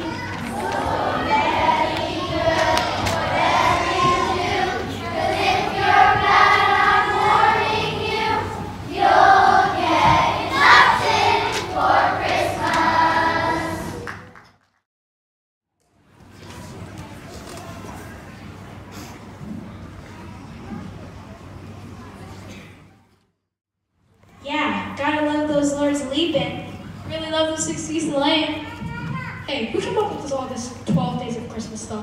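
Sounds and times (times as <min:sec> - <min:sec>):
children's choir singing: 0:00.0 - 0:14.1.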